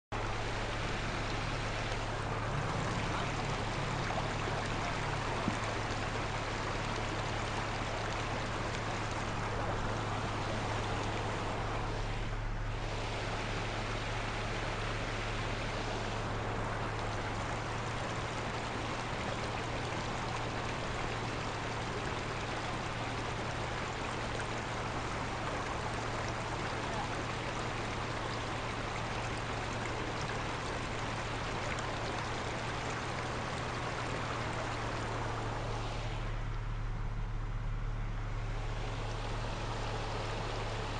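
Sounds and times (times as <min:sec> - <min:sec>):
low engine hum: 0:00.0 - 0:40.9
water rushing down a rocky trail: 0:00.2 - 0:37.6, 0:38.2 - 0:40.9.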